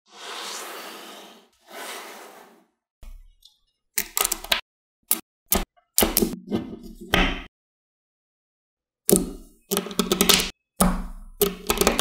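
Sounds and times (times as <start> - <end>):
magnetic balls clicking together: 9.1 - 10.5, 11.4 - 12.0.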